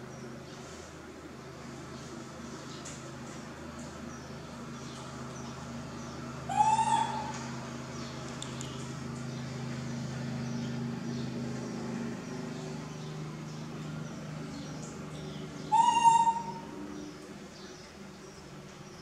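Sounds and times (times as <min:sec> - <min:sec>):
steady low hum: 0:00.0 - 0:19.0
baby monkey high-pitched call: 0:06.5 - 0:07.3, 0:15.7 - 0:16.7.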